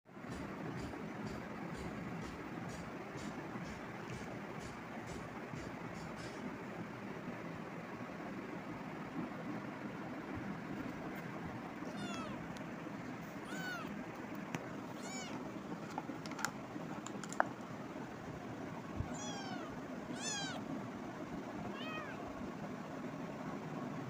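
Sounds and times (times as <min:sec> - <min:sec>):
steady background hiss: 0:00.1 - 0:24.0
kitten meowing: 0:11.8 - 0:12.5, 0:13.4 - 0:14.0, 0:14.9 - 0:15.4, 0:19.0 - 0:20.6, 0:21.7 - 0:22.2.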